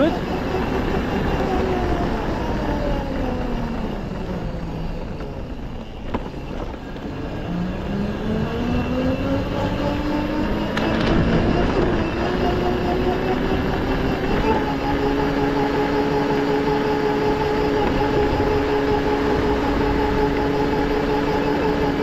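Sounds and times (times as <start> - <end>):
quad bike engine running: 0.0 - 22.0.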